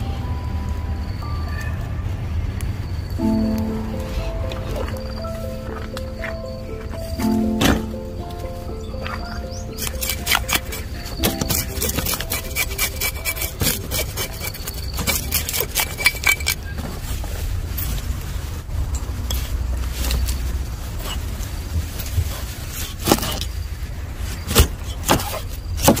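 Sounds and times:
cleaver scraping fish scales: 9.8 - 16.6.

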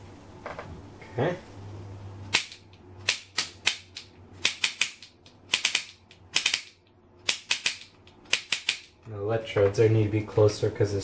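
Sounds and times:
hand-held sparker clicking: 2.3 - 8.9.

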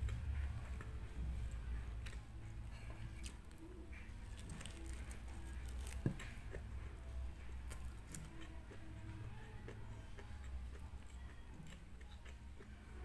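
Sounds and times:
soft chewing: 0.0 - 13.0
seaweed wrap crackling: 4.3 - 6.3.

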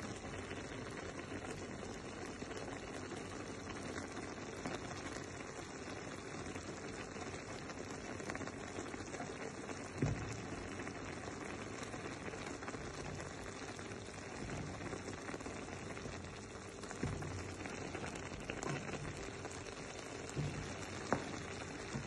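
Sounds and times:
food simmering in a pan: 0.0 - 22.0
wooden spoon knocking a pan: 14.4 - 16.3, 16.9 - 22.0.

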